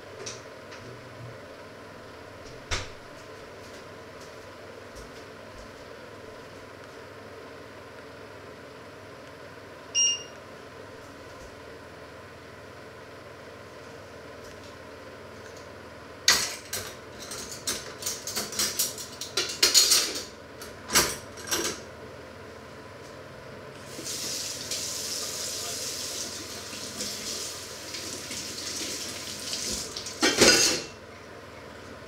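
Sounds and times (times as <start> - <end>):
dishes clattering in a steel sink: 16.3 - 20.3, 30.1 - 31.0.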